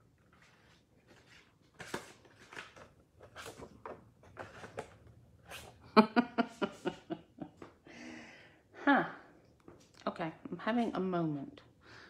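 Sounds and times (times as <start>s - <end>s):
card rustling: 0.2s - 5.8s.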